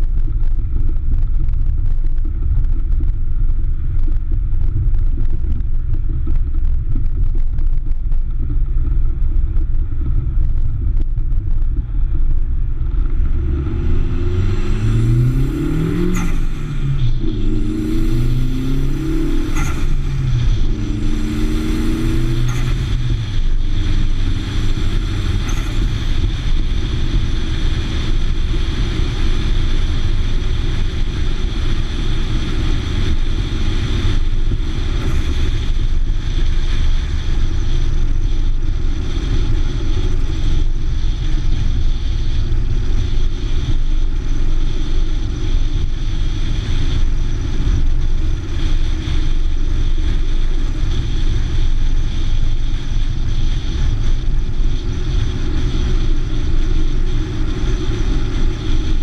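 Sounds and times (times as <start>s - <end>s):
road noise: 0.0s - 59.0s
wind noise: 0.0s - 59.0s
car engine accelerating: 12.6s - 31.1s.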